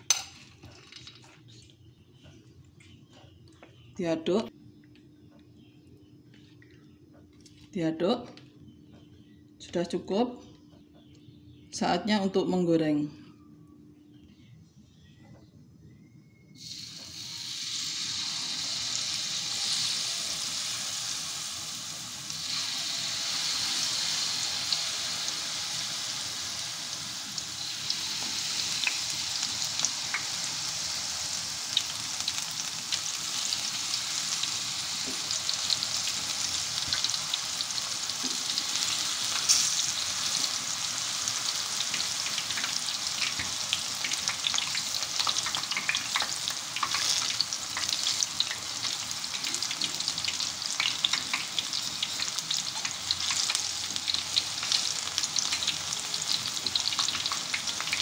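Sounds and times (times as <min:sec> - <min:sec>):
batter sizzling in hot oil: 0:16.6 - 0:58.0.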